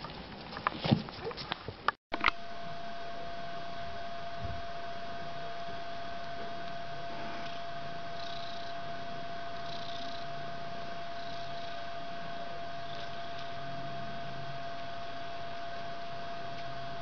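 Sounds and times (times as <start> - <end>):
high electrical hum: 1.5 - 17.0
cat purring: 7.1 - 14.2.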